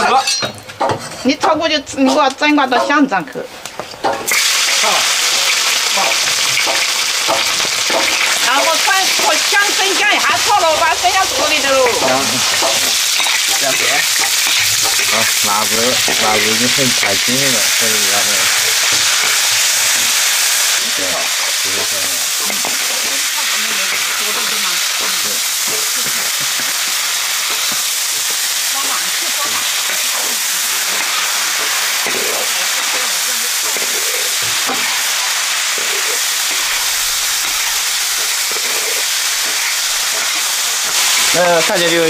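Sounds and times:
food sizzling in a wok: 0:00.0 - 0:42.0
metal spatula stirring: 0:05.6 - 0:17.8, 0:21.0 - 0:41.9.

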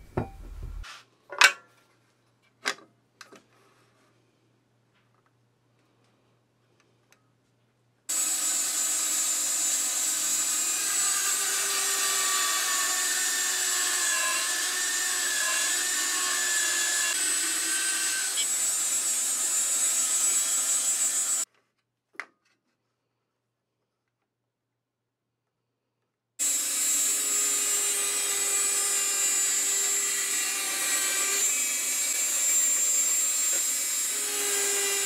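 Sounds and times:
bandsaw cutting wood: 0:08.1 - 0:21.5, 0:26.4 - 0:35.0.

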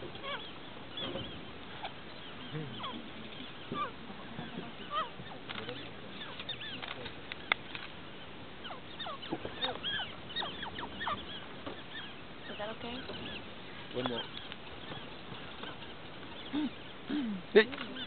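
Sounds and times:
birds chirping and whistling: 0:00.0 - 0:18.0
sharp clicks: 0:06.3 - 0:08.0.

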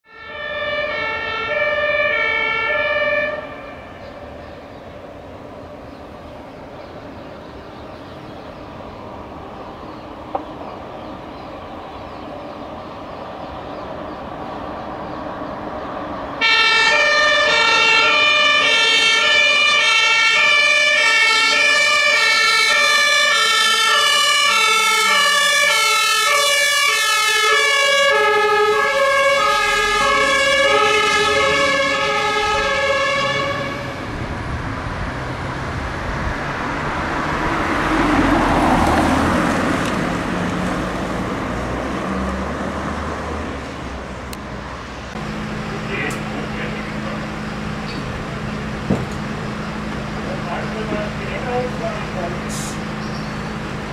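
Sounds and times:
two-tone fire siren: 0:00.0 - 0:04.4, 0:16.4 - 0:35.1
fire truck passing: 0:00.0 - 0:53.9.

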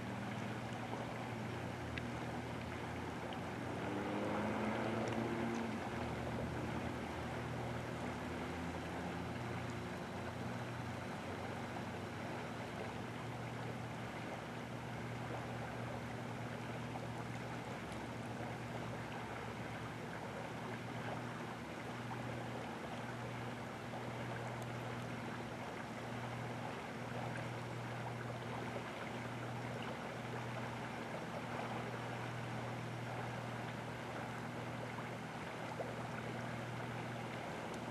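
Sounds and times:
low hum: 0:00.0 - 0:37.9
river water rushing: 0:00.0 - 0:37.9.

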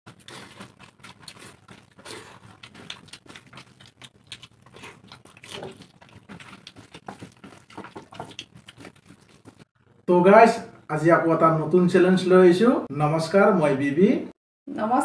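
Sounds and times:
fingers squishing wet rice: 0:00.1 - 0:09.7
mouths chewing and smacking: 0:00.1 - 0:09.7.

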